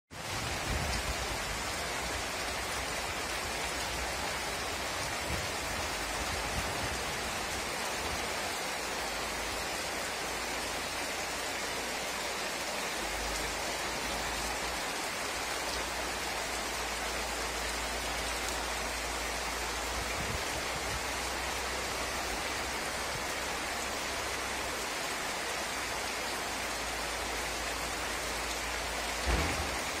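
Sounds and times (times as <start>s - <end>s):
steady rain falling: 0.1s - 30.0s
thump: 29.2s - 30.0s.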